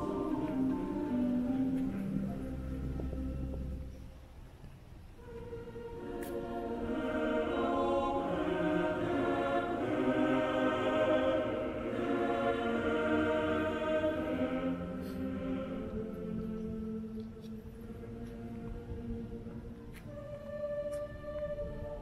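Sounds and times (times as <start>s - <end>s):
choir singing sustained chords: 0.0s - 22.0s.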